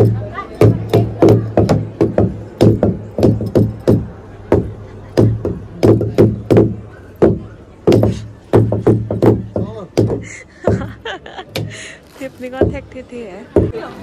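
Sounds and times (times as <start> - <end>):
wooden beaters pounding log drum: 0.0 - 11.8, 12.4 - 13.8.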